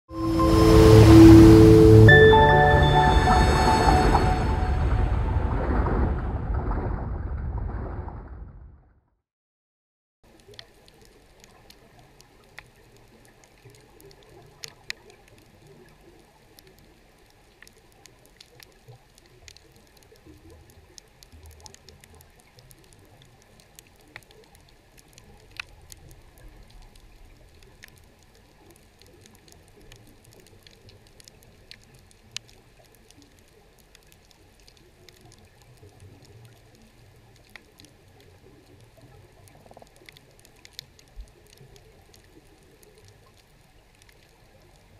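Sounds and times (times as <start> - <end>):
low underwater rumble: 0.1 - 8.9
sharp clicks and crackles: 10.3 - 44.9.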